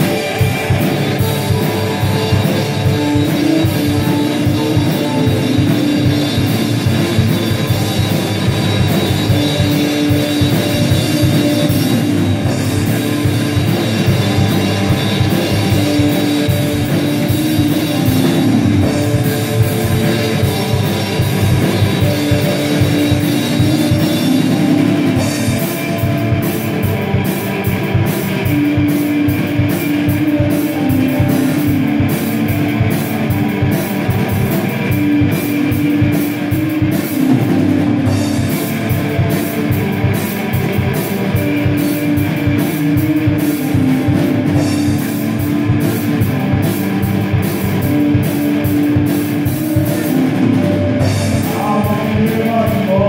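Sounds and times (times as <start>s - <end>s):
live band playing: 0.0s - 53.0s.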